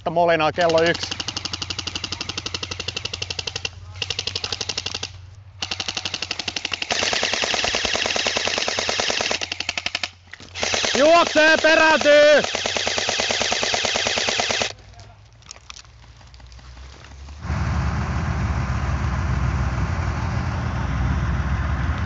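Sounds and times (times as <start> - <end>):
airsoft rifles firing full-auto: 0.6 - 14.8.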